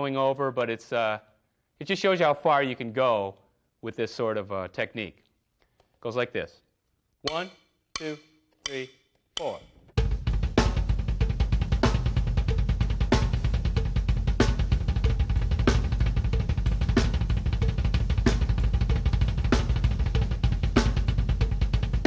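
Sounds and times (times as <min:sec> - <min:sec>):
sharp drum accents: 0:09.4 - 0:22.0
fast double bass drums: 0:10.0 - 0:22.0.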